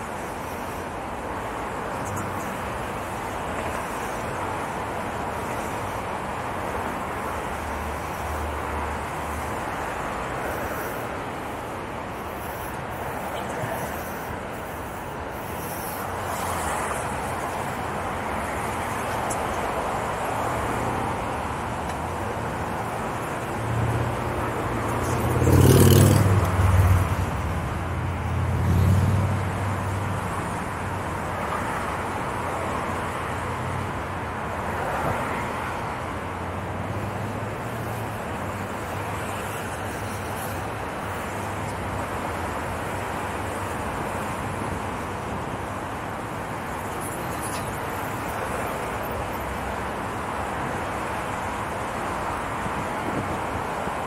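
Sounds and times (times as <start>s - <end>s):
road traffic rumble: 0.0s - 54.0s
loud vehicle passing: 23.6s - 29.9s.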